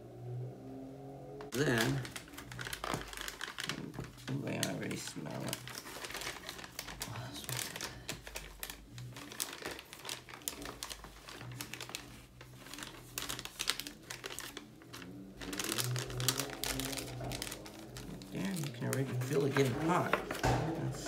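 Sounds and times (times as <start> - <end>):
plastic bag crinkling: 1.5 - 21.0.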